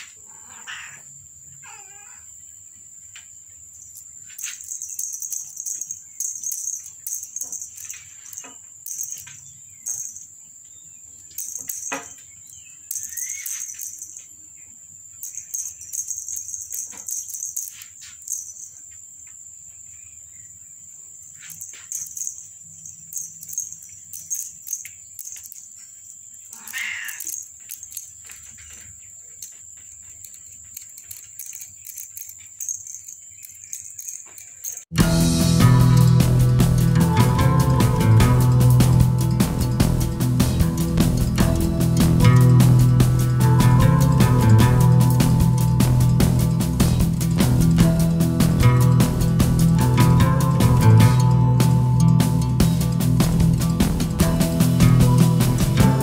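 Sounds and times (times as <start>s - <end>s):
cat meowing: 1.6s - 2.3s, 26.6s - 27.3s
small jingle bell jingling: 3.8s - 10.4s, 11.2s - 18.9s, 21.4s - 56.0s.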